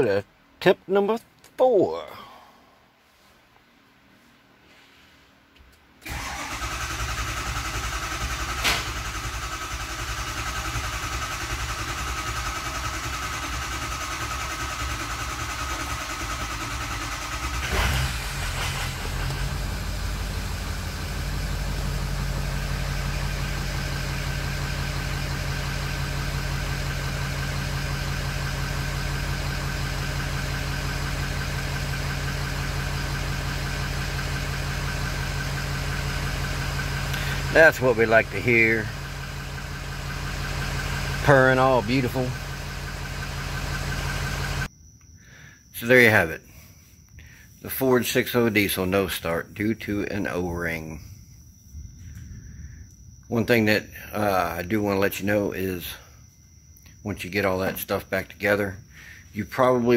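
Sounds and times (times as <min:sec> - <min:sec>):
diesel engine cranking: 0:06.0 - 0:44.7
diesel engine idling: 0:06.0 - 0:44.7.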